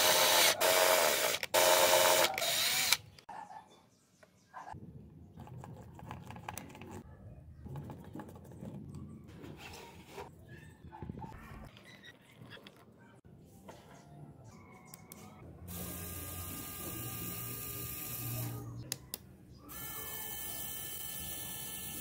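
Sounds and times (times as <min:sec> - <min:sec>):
power drill boring plastic: 0:00.0 - 0:03.0, 0:19.7 - 0:22.0.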